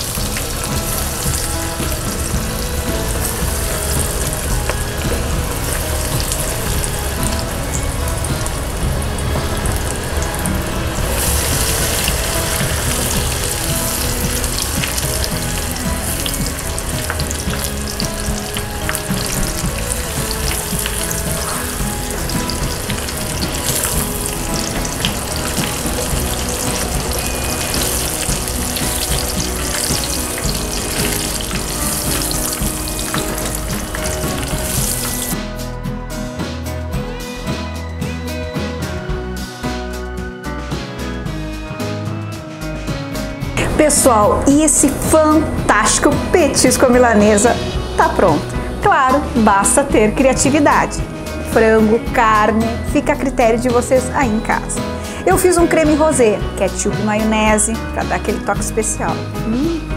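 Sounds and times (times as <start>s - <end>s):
chicken deep-frying in oil: 0.0s - 35.4s
background music: 0.0s - 59.9s.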